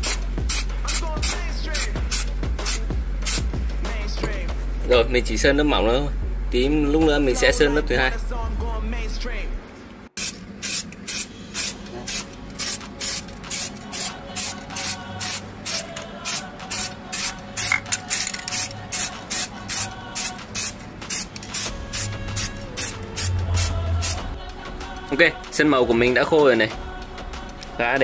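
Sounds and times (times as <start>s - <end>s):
spray paint can bursts: 0.0s - 3.5s, 10.2s - 24.3s.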